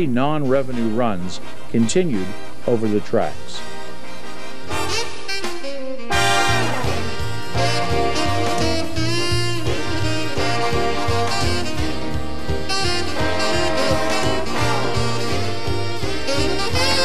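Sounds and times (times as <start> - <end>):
upbeat jazz with saxophone: 0.3 - 17.0.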